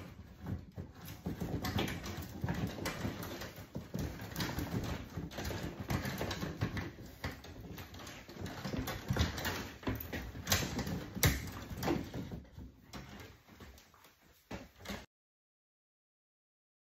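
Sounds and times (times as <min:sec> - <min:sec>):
cable rustling: 0:00.0 - 0:15.1.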